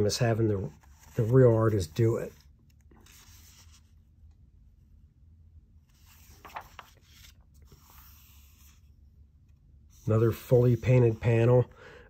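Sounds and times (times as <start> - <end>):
paper page turning: 0.6 - 4.0, 5.9 - 8.8.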